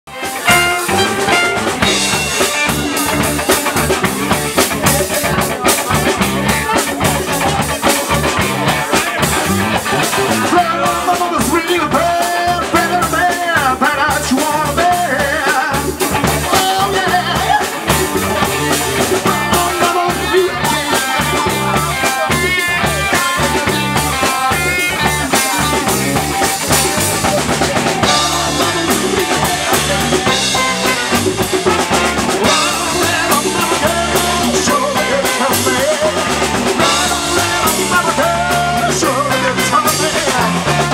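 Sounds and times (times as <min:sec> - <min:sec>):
horn section: 0:00.1 - 0:04.4, 0:28.0 - 0:40.9
bass guitar: 0:00.1 - 0:40.9
drum kit beat: 0:00.1 - 0:40.9
electric guitar: 0:00.1 - 0:40.9.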